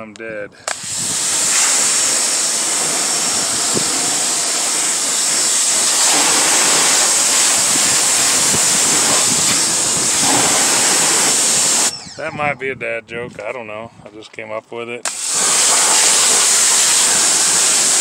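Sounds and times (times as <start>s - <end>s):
power washer jet spraying: 0.7s - 12.0s, 15.1s - 18.0s.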